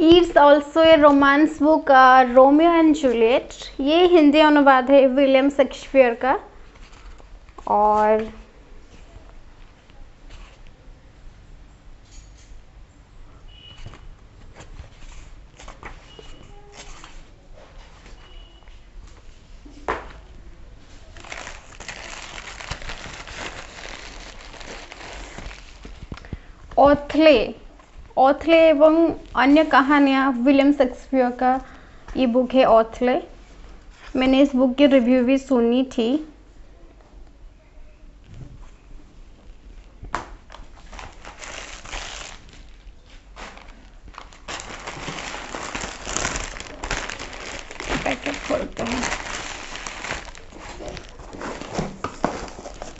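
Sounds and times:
packaging wrapper crinkling: 21.0 - 26.3, 40.7 - 52.9.

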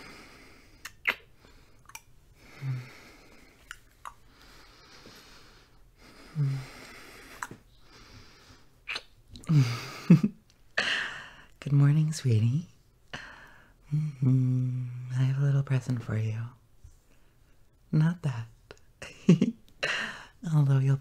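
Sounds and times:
man breathing softly: 0.0 - 8.8, 10.8 - 11.6, 13.1 - 15.0, 19.8 - 20.4
kissing smacks: 0.8 - 2.1, 7.3 - 7.6, 8.8 - 9.5
man humming: 13.9 - 15.1.

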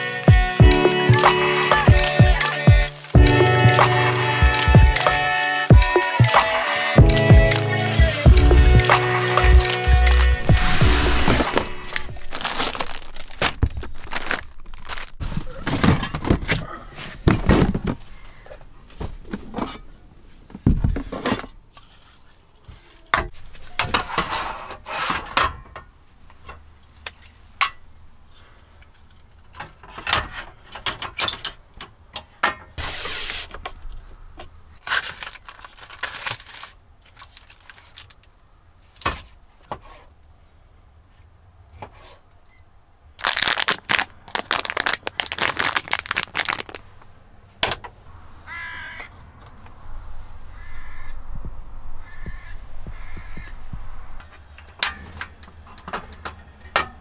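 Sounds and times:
rustling: 6.7 - 27.6, 43.2 - 54.5.

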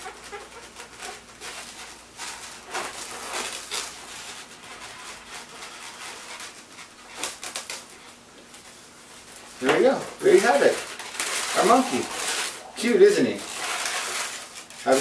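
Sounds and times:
marker scratching on balloon: 0.0 - 8.2
balloons squeaking and rubbing: 0.0 - 15.0.

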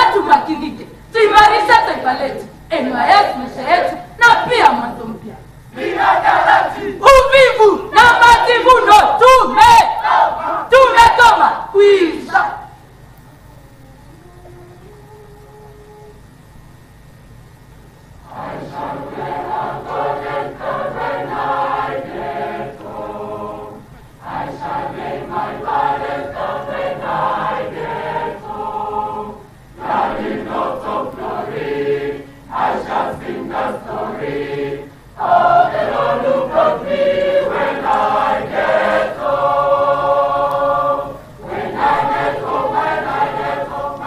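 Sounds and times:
group singing in chorus: 5.7 - 7.0, 9.9 - 10.7, 18.2 - 44.0.

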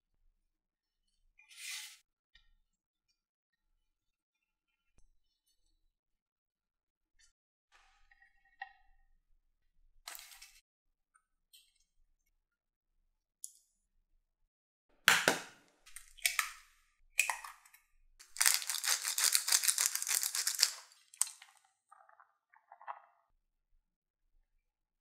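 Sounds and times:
eggs cracking: 17.2 - 23.0
shredded cheese pattering: 18.2 - 20.8
crinkling rustle: 18.2 - 21.4.

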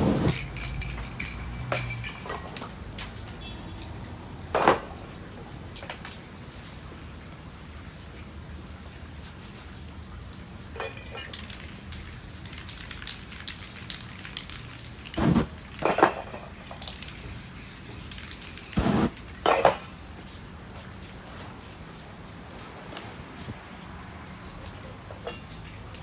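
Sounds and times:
spray paint can hissing: 0.0 - 0.8, 11.3 - 15.7, 16.6 - 19.2.

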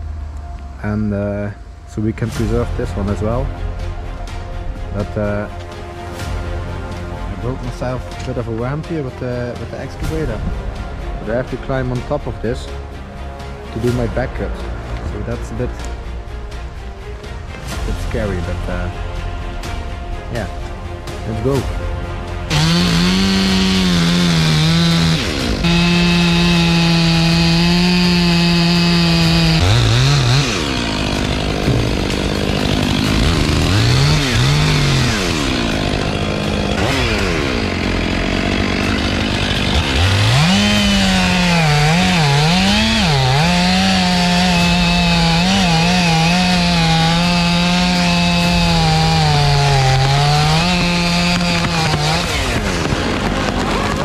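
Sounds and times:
chainsaw cutting through trunk: 22.4 - 54.0.

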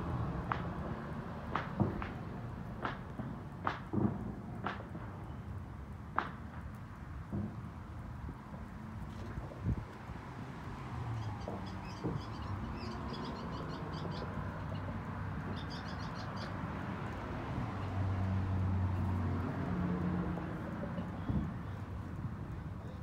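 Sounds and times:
outdoor background noise: 0.0 - 23.0
small bird chirping: 11.2 - 14.9, 15.5 - 16.6.

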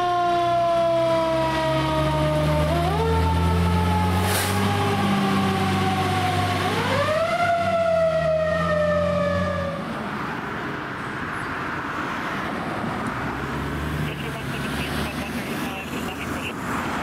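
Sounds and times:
fire engine siren wailing: 0.0 - 10.2
road traffic noise: 0.0 - 17.0.

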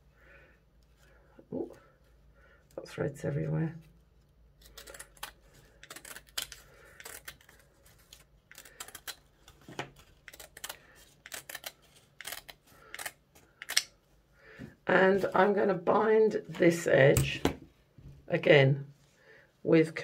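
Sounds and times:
scissors snipping stiff material: 4.6 - 14.0.

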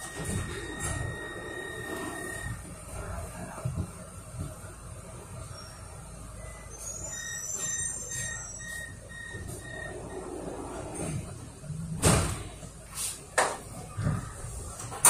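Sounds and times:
short high warning beeps: 0.0 - 2.6, 5.6 - 10.2
loud thump: 12.0 - 12.5.

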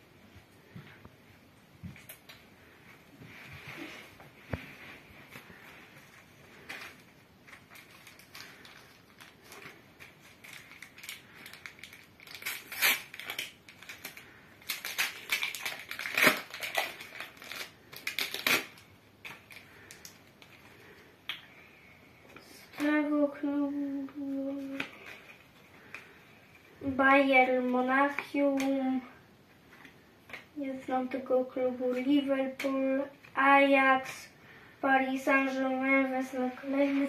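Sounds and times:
cards rustling: 5.3 - 20.9
foil wrapper crinkling and tearing: 6.6 - 20.7
child's voice holding a note: 22.5 - 24.9, 26.8 - 29.2, 30.6 - 37.0.

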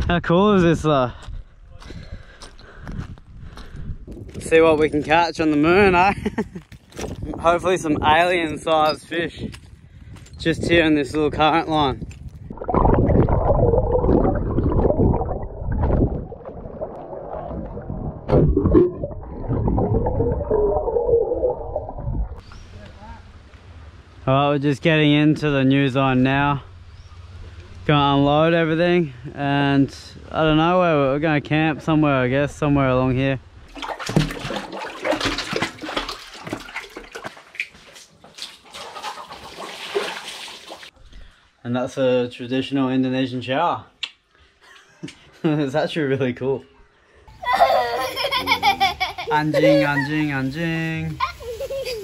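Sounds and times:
water sloshing and gurgling: 12.1 - 22.4, 33.6 - 41.1
water splash: 12.5 - 22.4, 33.7 - 41.0.

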